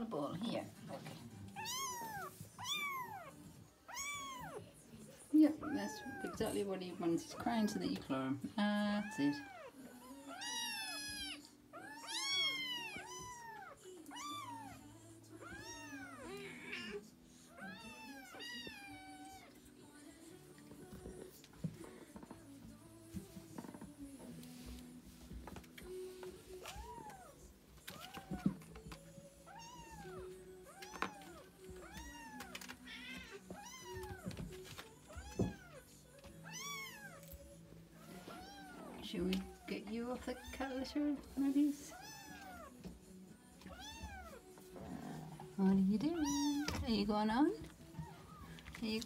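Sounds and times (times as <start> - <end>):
kittens meowing: 1.5 - 4.6, 9.0 - 19.6, 36.4 - 37.4, 41.9 - 42.8, 46.1 - 46.8
kitten meowing: 1.6 - 3.3, 3.9 - 4.6, 10.3 - 14.8, 46.2 - 46.8.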